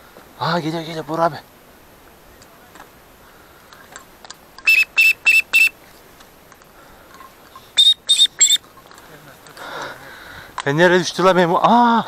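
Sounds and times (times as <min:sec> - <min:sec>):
high whistle-like notes: 0:04.6 - 0:05.8, 0:07.8 - 0:08.6.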